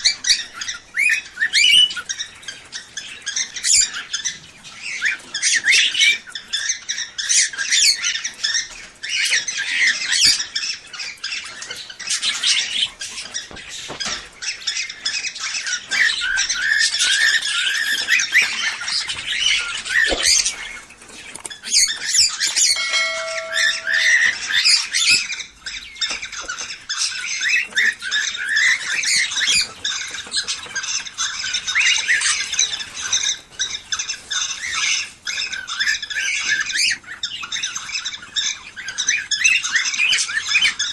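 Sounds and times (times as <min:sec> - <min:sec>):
cage birds chattering and squawking: 0:00.0 - 0:40.9
steady whistle: 0:22.8 - 0:24.6.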